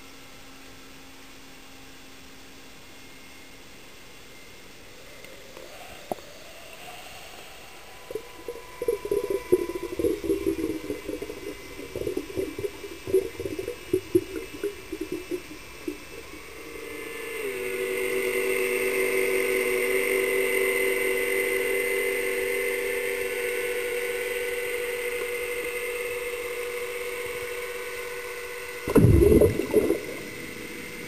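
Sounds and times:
steady humming tone: 0:00.0 - 0:31.0
steady hiss: 0:03.8 - 0:31.0
underwater bubbling: 0:08.1 - 0:16.6, 0:28.9 - 0:31.0.

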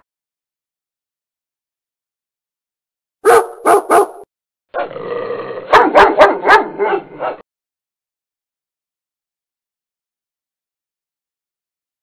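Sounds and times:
dog barking: 0:03.2 - 0:04.3, 0:05.7 - 0:07.4.

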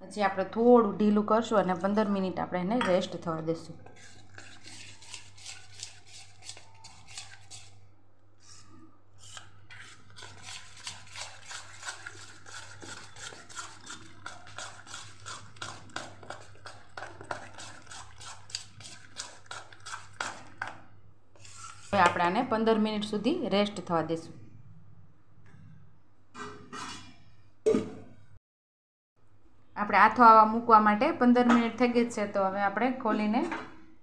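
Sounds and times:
batter beaten in steel bowl: 0:03.8 - 0:07.8, 0:09.2 - 0:22.6.

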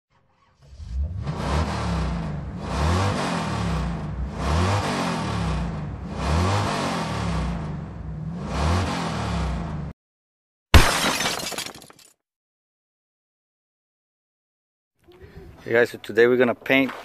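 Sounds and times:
car engine revving: 0:00.6 - 0:10.0.

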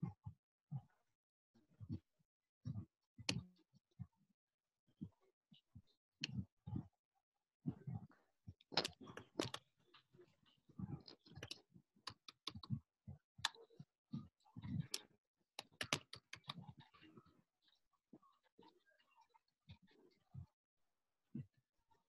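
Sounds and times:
computer keyboard typing: 0:11.4 - 0:12.7, 0:15.6 - 0:16.6.

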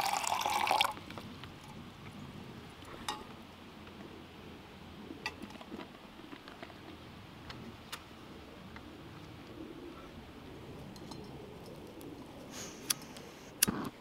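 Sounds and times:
faint steady hiss: 0:00.0 - 0:14.0
metal mug clinking: 0:10.9 - 0:11.4.

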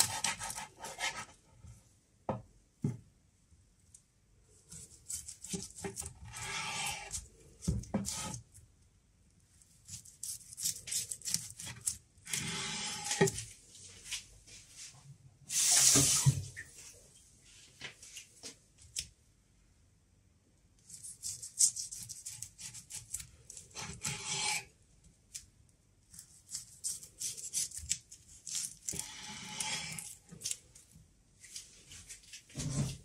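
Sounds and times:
knife sawing through sushi roll: 0:06.3 - 0:07.2, 0:23.8 - 0:24.7, 0:28.9 - 0:30.1.

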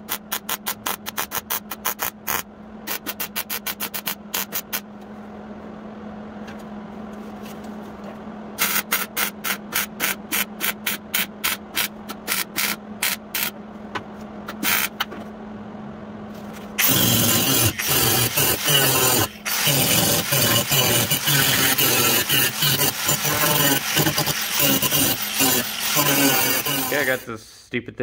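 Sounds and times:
steady low hum: 0:00.0 - 0:28.0
loud power tool: 0:16.8 - 0:27.3
rasping strokes on sheet metal: 0:16.8 - 0:27.3.

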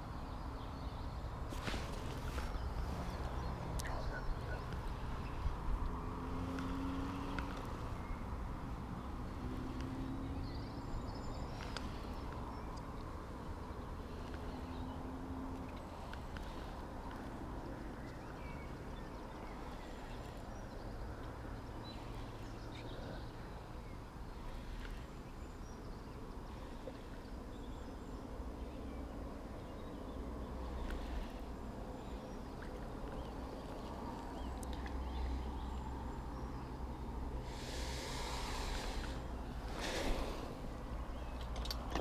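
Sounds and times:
short rustle: 0:01.5 - 0:03.2.

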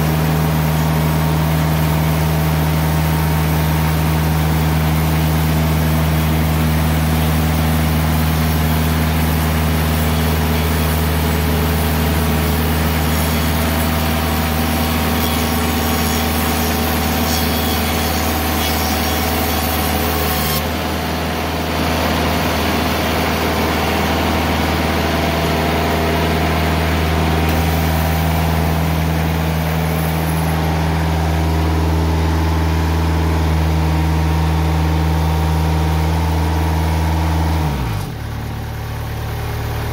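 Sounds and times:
sawmill engine running: 0:00.0 - 0:39.9.

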